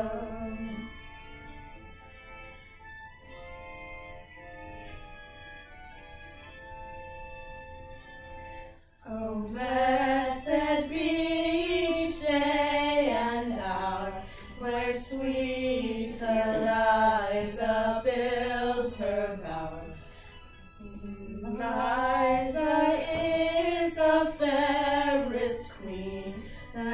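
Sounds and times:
women singing unaccompanied: 0.0s - 0.9s, 9.1s - 20.0s, 20.9s - 26.9s.

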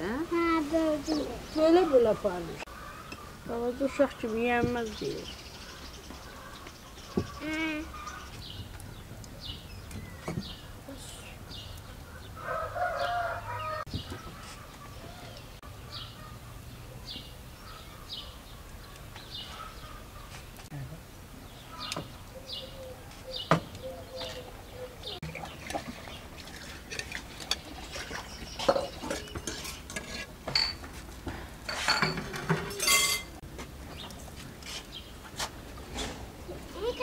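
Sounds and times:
dishes and cutlery clinking: 26.5s - 31.0s, 31.7s - 33.4s.

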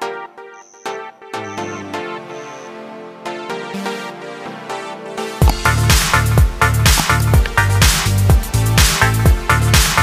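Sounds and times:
electronic dance music: 5.4s - 10.0s
heavy kick drum: 5.4s - 10.0s.

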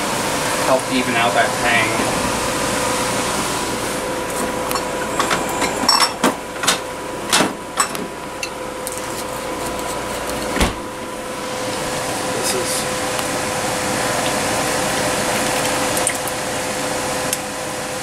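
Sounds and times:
bottles clinking in refrigerator door: 4.8s - 6.8s.

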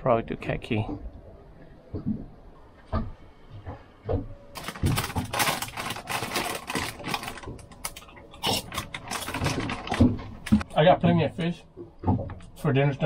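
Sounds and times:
plastic snack bag crackling: 4.6s - 10.5s.

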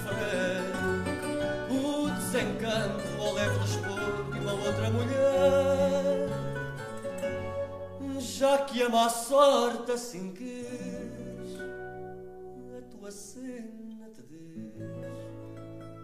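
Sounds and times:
person singing with vibrato: 0.0s - 12.0s
plucked guitar: 0.0s - 16.0s.

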